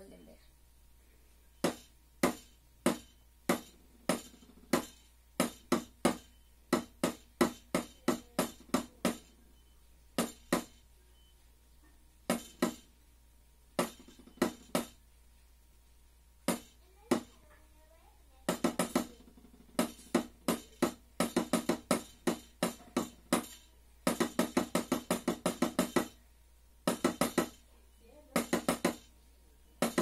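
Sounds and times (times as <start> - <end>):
drumsticks striking practice pad: 1.6 - 9.3, 10.2 - 10.8, 13.8 - 15.0, 16.5 - 17.3, 18.5 - 26.2, 26.9 - 27.6, 29.8 - 30.0.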